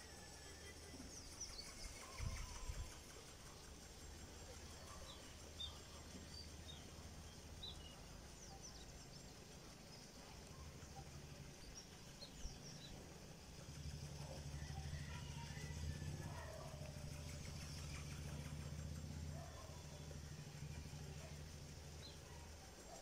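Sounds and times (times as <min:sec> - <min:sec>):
small birds chirping: 0:00.0 - 0:23.0
low steady rumble: 0:00.2 - 0:23.0
motor vehicle approaching: 0:13.7 - 0:21.7.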